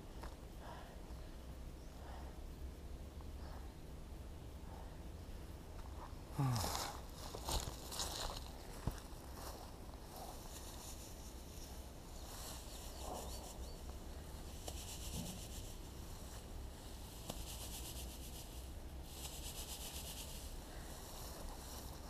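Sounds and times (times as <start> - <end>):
high rasping in grass: 6.4 - 22.0.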